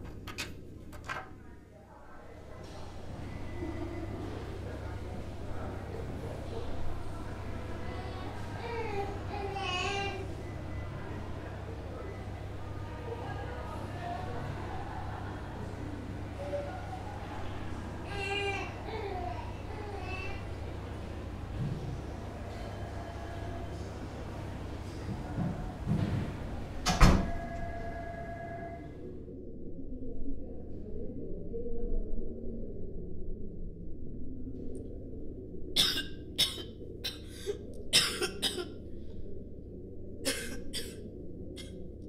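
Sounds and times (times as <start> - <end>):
faint hum: 0.0 - 42.0
person coughing: 35.8 - 38.8, 40.3 - 41.0.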